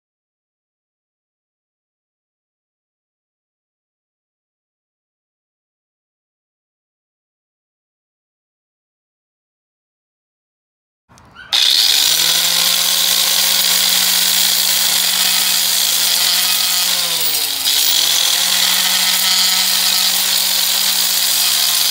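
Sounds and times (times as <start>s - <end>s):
angle grinder whining: 11.5s - 21.9s
abrasive hiss grinding concrete: 11.6s - 21.9s.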